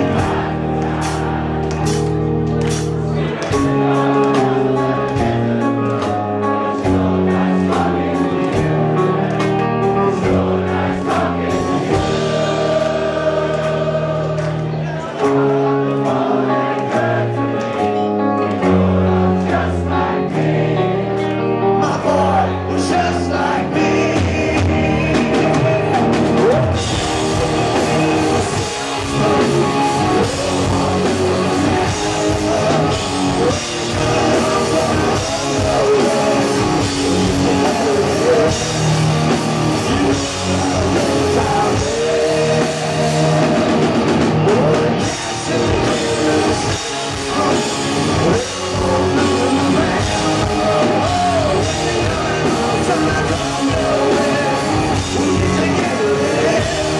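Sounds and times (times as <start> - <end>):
rock band playing live: 0.0 - 56.9
person singing: 21.7 - 56.9.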